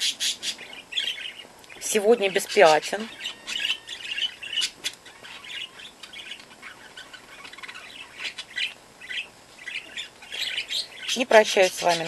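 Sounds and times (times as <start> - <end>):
puppies squeaking: 2.4 - 12.0.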